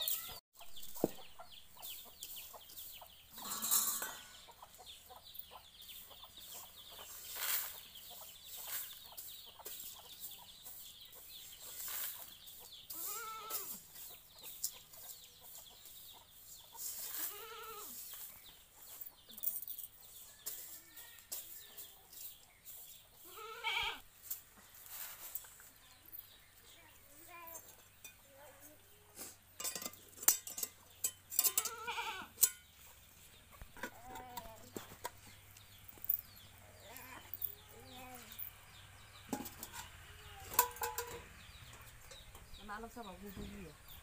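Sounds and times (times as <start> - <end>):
farm animal calls: 3.3 - 4.8, 12.8 - 13.8, 23.2 - 24.0, 31.4 - 32.5.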